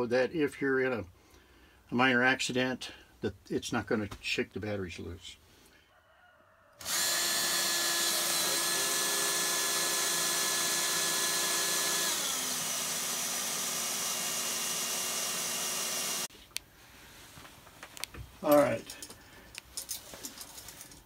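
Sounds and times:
cordless drill motor whine: 0:06.8 - 0:16.3.

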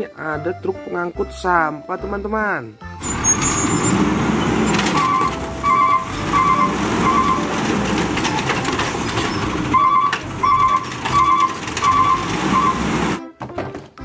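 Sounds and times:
hydraulic arm lifting cart: 0:03.0 - 0:13.2
garbage truck engine rumble: 0:03.0 - 0:14.0.

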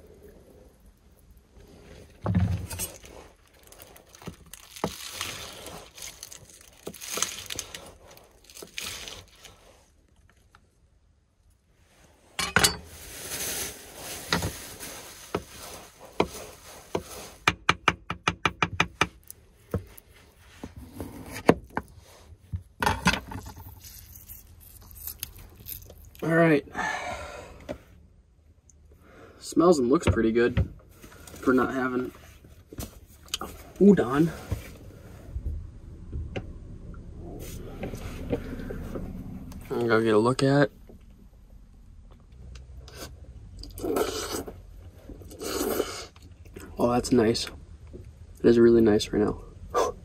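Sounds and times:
plastic bag rustling: 0:01.5 - 0:10.3, 0:12.6 - 0:17.4.

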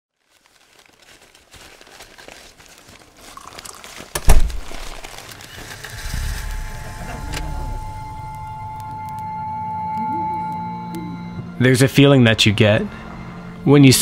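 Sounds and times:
crinkling and rustling: 0:00.1 - 0:09.3
low rumble and hiss: 0:05.7 - 0:14.0.

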